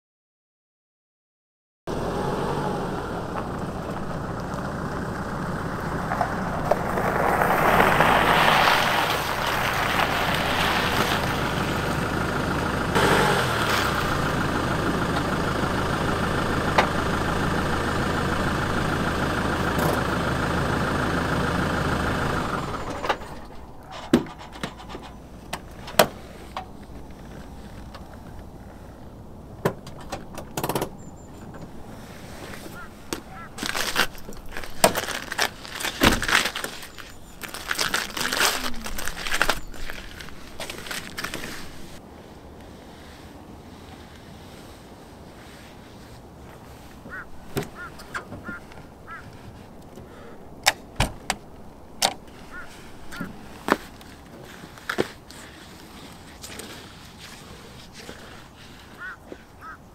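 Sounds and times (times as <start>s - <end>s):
truck engine running: 1.9s - 42.0s
sharp clicks and knocks: 29.6s - 31.7s
tyre noise on ice: 32.1s - 42.0s
car door opening: 50.6s - 52.2s.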